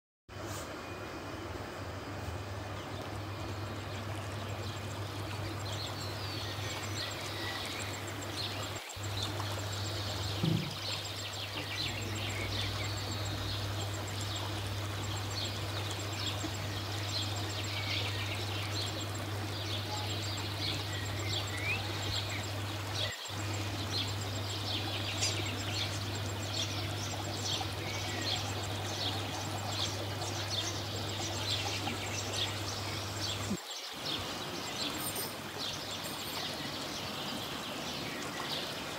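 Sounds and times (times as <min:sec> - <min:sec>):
steady low hum: 0:00.4 - 0:35.8
small birds chirping: 0:02.3 - 0:38.9
short low thump: 0:10.3 - 0:10.9.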